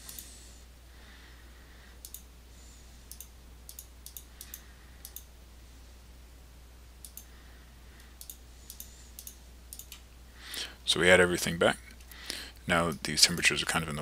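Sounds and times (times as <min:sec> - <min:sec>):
computer mouse clicking: 0:02.0 - 0:02.3, 0:03.1 - 0:05.3, 0:07.0 - 0:07.3, 0:08.0 - 0:10.6.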